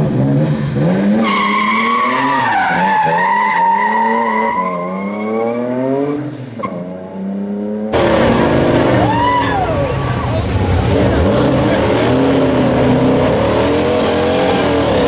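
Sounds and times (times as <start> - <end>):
car engine revving: 5.0 - 15.0.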